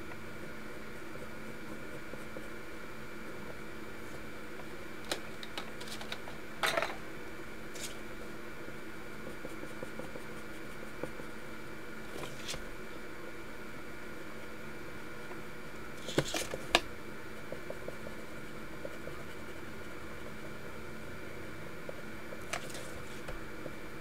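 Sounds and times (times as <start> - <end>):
steady hum: 0.0 - 24.0
pencil scratching on paper: 0.9 - 2.6, 9.1 - 11.3, 17.3 - 20.7.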